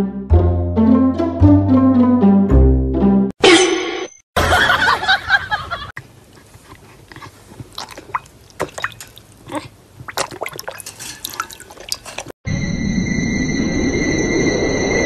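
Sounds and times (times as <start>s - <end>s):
dog lapping water: 6.2s - 12.3s.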